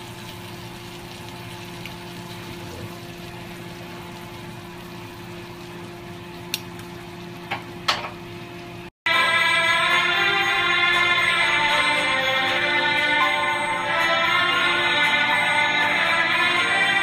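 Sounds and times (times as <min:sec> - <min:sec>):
kitchen hum and hiss: 0:00.0 - 0:08.9
background music: 0:09.1 - 0:17.0.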